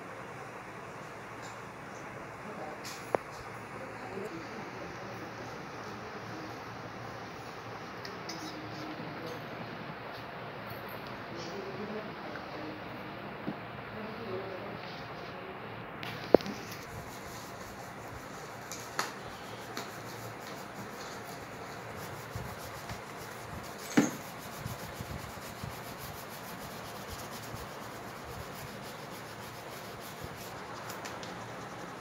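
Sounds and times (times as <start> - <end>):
crayon rubbing on paper: 16.5 - 32.0.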